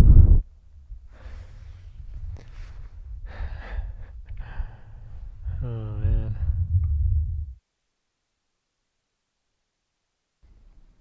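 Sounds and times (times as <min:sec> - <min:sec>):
wind rumble on microphone: 0:00.0 - 0:07.6
man breathing hard: 0:01.1 - 0:06.7.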